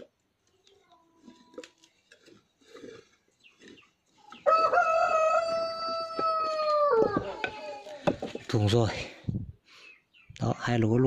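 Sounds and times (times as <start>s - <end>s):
hand drill knocking and scraping: 0.9s - 8.7s
rooster crowing: 4.4s - 7.7s.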